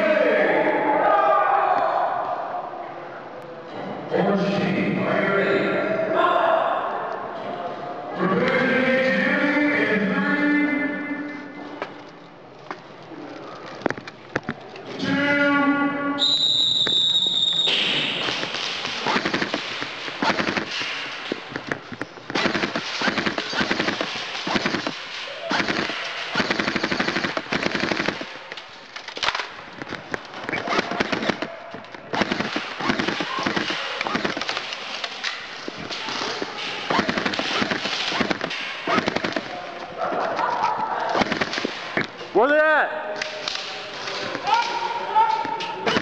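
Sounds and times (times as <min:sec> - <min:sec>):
airsoft guns firing in bursts: 0:17.8 - 0:21.6, 0:22.3 - 0:28.5, 0:29.2 - 0:35.2, 0:36.8 - 0:39.6, 0:41.1 - 0:42.1.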